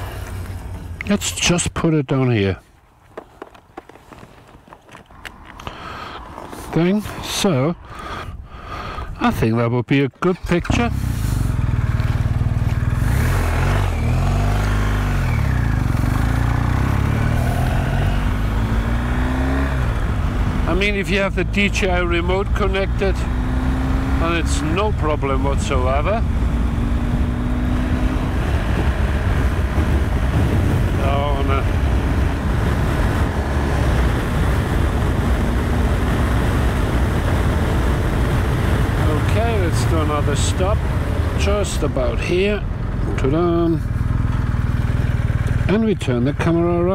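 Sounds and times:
tyre noise: 0:02.9 - 0:07.2
motorcycle engine accelerating: 0:10.7 - 0:46.9
wind rumble on microphone: 0:26.0 - 0:41.6.

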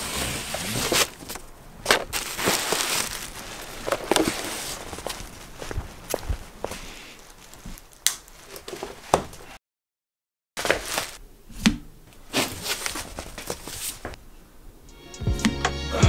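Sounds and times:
cardboard box being handled: 0:00.0 - 0:06.6, 0:12.3 - 0:14.2.

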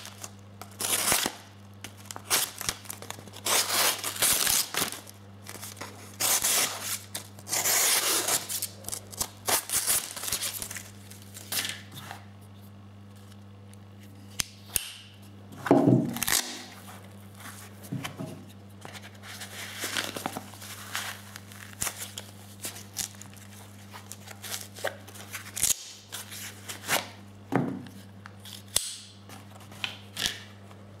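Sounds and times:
paper crinkling: 0:00.0 - 0:11.8, 0:18.8 - 0:27.1
knife slicing paper: 0:06.2 - 0:10.8.

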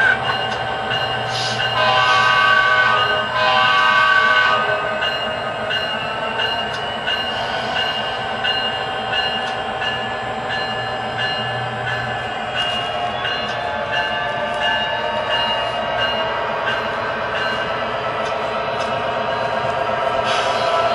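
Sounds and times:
model train running: 0:00.0 - 0:20.9
rail clicks: 0:00.0 - 0:20.9
chorded train horn: 0:01.3 - 0:05.2.

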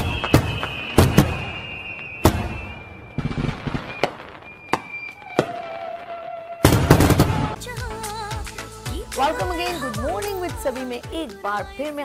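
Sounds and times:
firework bangs: 0:00.0 - 0:07.6.

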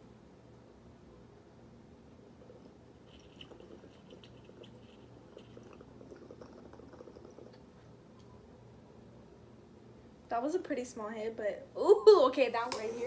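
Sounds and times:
water bubbling and popping in glass: 0:02.4 - 0:07.9.

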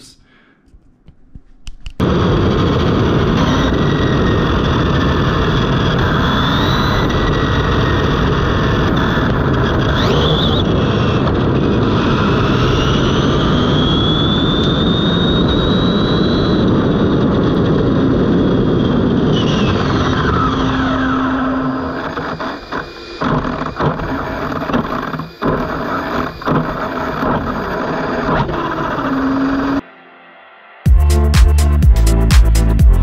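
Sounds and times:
wind and tyre noise on asphalt: 0:02.0 - 0:22.0
electric motor whine: 0:02.0 - 0:29.8.

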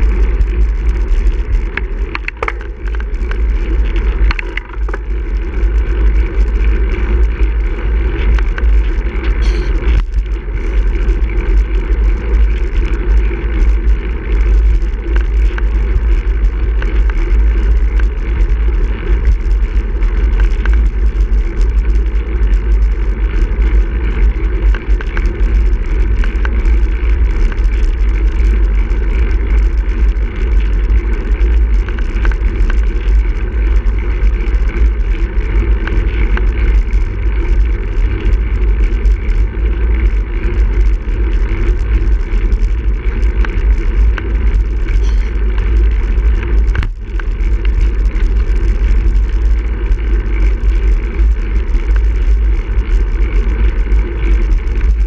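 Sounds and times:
wind rumble on microphone: 0:00.0 - 0:55.0
bicycle tyres hissing on road: 0:05.1 - 0:15.2, 0:44.8 - 0:45.5.

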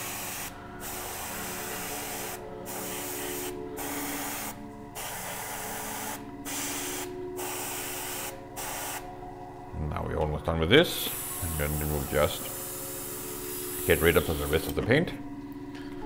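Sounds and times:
airbrush spraying hiss: 0:00.0 - 0:09.1, 0:11.0 - 0:14.7
steady low hum: 0:00.0 - 0:16.0.

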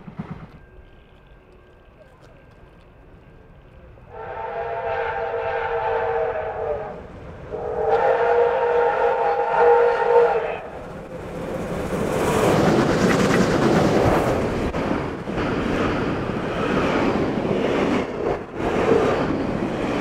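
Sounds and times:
steam train running past: 0:00.0 - 0:20.0
steam locomotive whistle blasts: 0:04.1 - 0:10.7.

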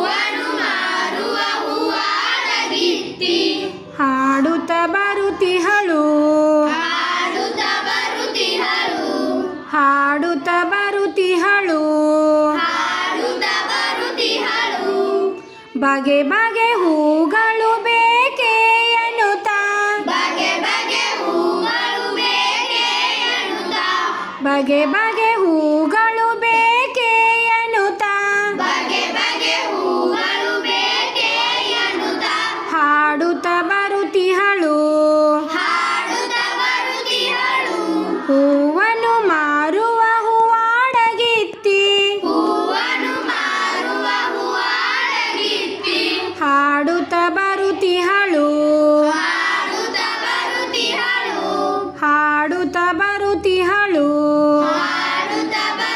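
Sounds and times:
children singing together: 0:00.0 - 0:04.0, 0:06.4 - 0:15.7, 0:16.5 - 0:34.4, 0:35.0 - 0:39.1, 0:42.1 - 0:55.9.

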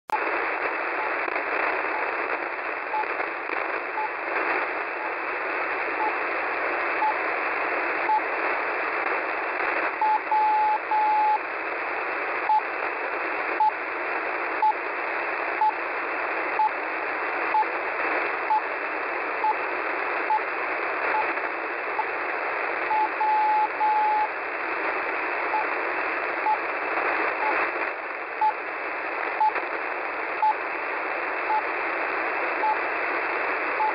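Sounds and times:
static hiss: 0:00.1 - 0:33.9
radio beacon beeps: 0:08.0 - 0:08.2, 0:10.0 - 0:11.4, 0:22.9 - 0:24.3.

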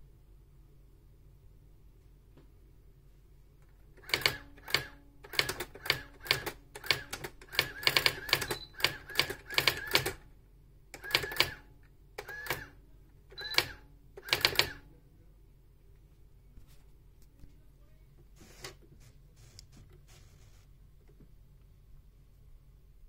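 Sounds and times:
electronic typewriter clacking: 0:04.0 - 0:10.2, 0:11.0 - 0:11.6, 0:13.4 - 0:14.8.

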